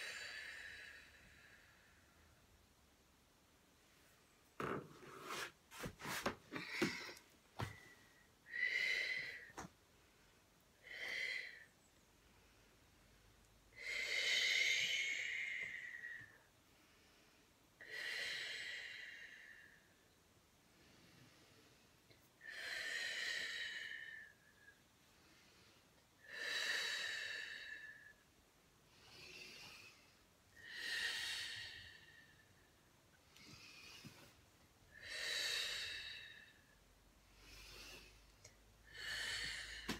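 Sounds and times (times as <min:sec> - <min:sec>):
slow deep breathing: 0:20.6 - 0:39.9.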